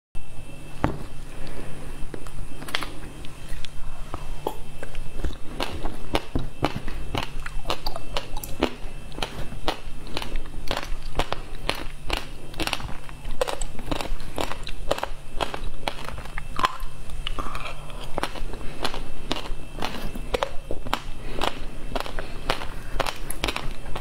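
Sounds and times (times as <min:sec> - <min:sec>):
chewing and crunching ice: 0:04.8 - 0:24.0.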